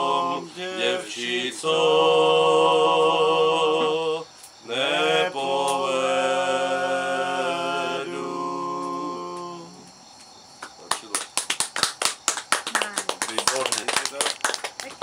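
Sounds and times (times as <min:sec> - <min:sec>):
two men singing a cappella: 0:00.0 - 0:09.9.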